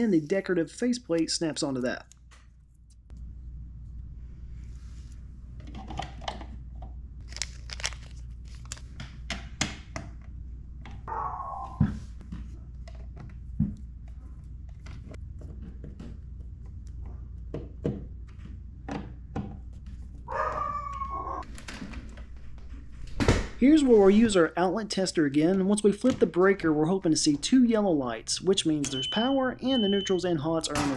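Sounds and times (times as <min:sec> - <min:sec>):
dog whining: 0:11.1 - 0:11.9, 0:20.3 - 0:21.4.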